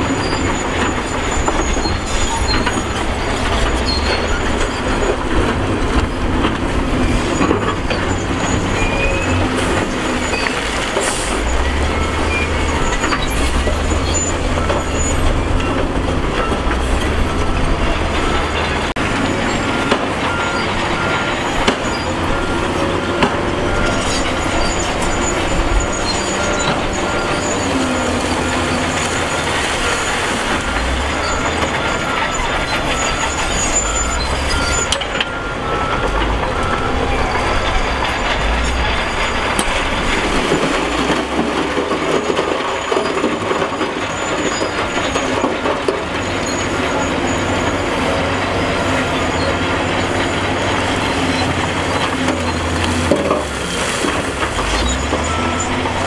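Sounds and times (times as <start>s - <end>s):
diesel engine under load: 0.0s - 56.0s.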